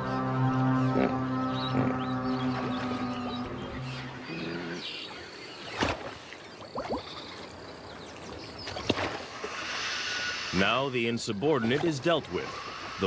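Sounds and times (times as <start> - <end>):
water sloshing and splashing: 5.1 - 9.7.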